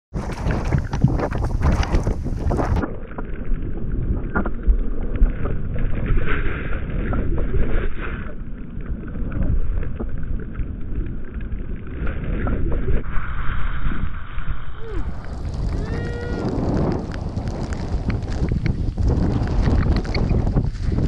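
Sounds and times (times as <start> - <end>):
wind buffeting microphone: 0.1 - 3.0, 11.7 - 21.0
knocks and pops: 0.1 - 3.3, 4.1 - 5.6, 16.5 - 21.0
snowboard plowing through snow: 13.0 - 21.0.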